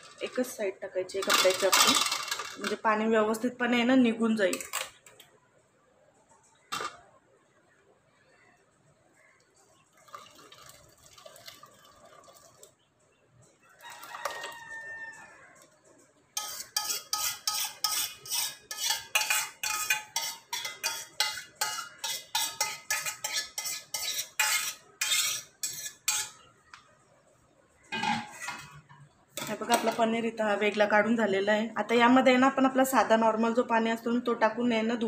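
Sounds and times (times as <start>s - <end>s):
spoon scraping a metal pan: 16.4s - 26.5s, 27.9s - 30.0s.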